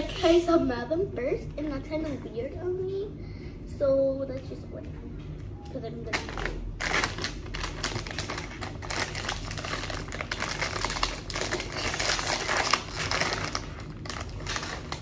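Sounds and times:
plastic packaging crinkling: 6.1s - 15.0s.

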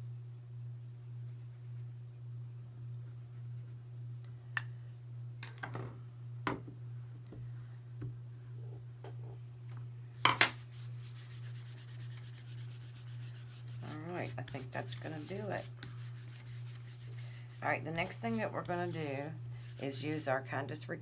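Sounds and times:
steady low hum: 0.0s - 21.0s
palm rubbing clay: 10.5s - 20.3s.

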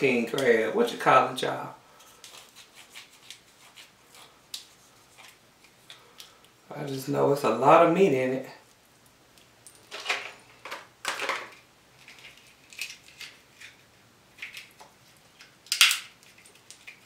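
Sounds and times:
crab shell cracking: 12.0s - 13.8s, 14.4s - 17.0s.

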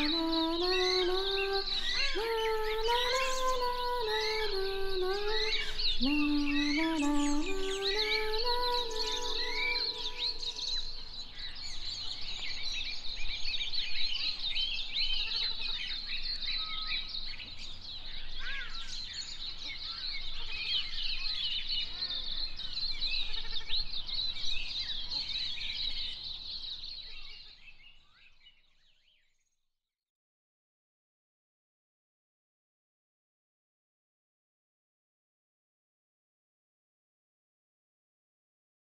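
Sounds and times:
small birds chirping and twittering: 0.0s - 29.6s.

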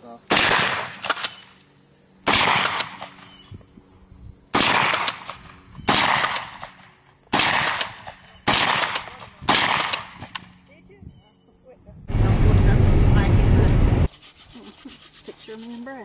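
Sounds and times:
shotgun shots: 0.3s - 1.5s, 2.2s - 3.3s, 4.5s - 10.4s.

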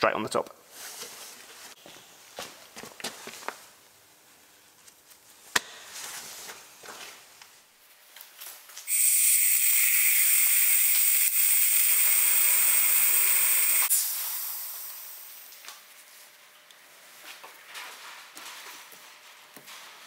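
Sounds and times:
pressurised air hissing: 8.9s - 15.4s.

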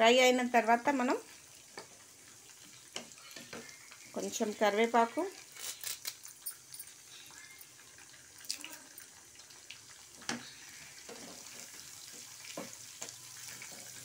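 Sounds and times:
oil sizzling in frying pan: 0.0s - 14.0s.

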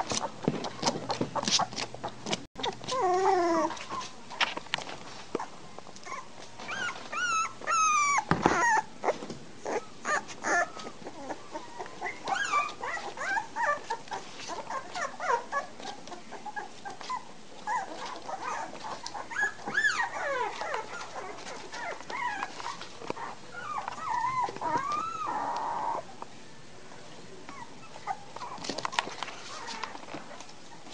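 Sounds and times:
puppies whimpering and squealing: 0.0s - 4.4s, 5.4s - 26.1s, 27.5s - 30.9s.

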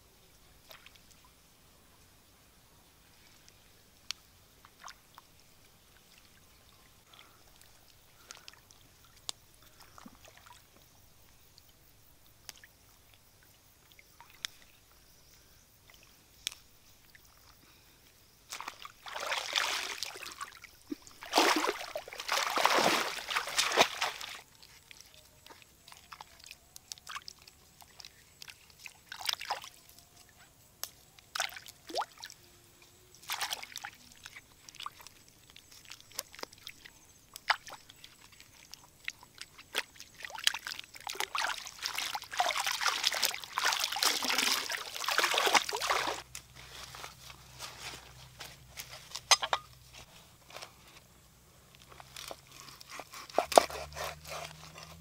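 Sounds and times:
muddy water sloshing and splashing: 5.9s - 10.7s, 18.5s - 29.8s, 31.3s - 32.4s, 33.2s - 48.1s
water dripping and trickling: 31.1s - 46.4s.

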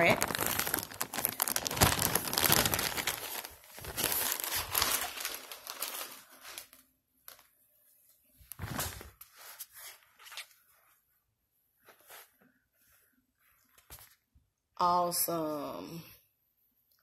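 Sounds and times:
plastic bag crinkling: 0.0s - 7.4s.

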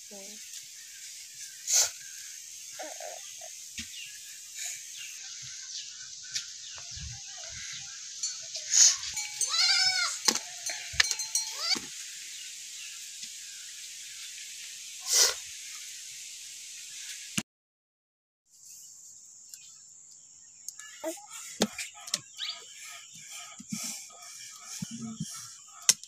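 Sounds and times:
steady high background hiss: 0.0s - 17.2s
goat bleating: 9.4s - 10.3s.

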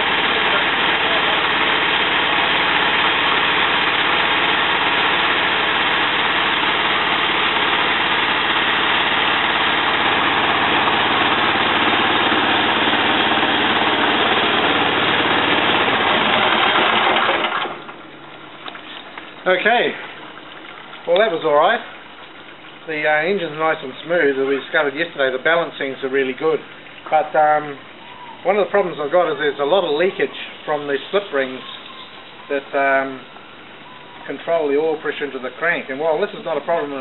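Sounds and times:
radial engine pistons and gears: 0.0s - 17.7s
small petrol engine running: 0.0s - 17.8s.

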